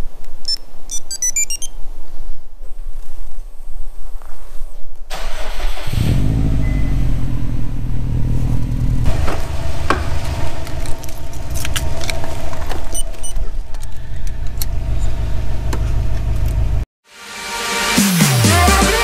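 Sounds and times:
starter cranking engine: 5.1 - 6.5, 8.8 - 16.6
car engine idling: 5.1 - 16.8.

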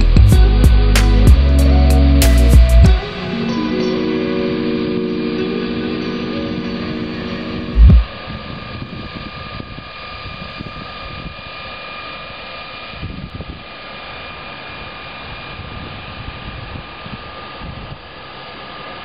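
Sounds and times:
wind on microphone: 0.0 - 11.8, 12.9 - 13.7, 14.7 - 18.2
mechanical drone: 0.0 - 19.0
faint whining tones: 1.5 - 13.0.

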